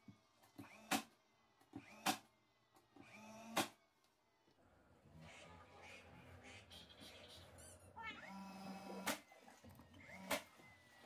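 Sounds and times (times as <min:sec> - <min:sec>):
nail gun motor whir: 0:00.4 - 0:03.8, 0:10.0 - 0:10.6.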